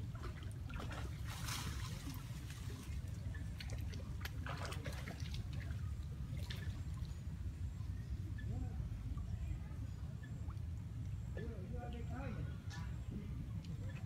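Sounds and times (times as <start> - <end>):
small water splashes: 0.0 - 7.8, 12.9 - 14.0
low background noise: 0.0 - 14.0.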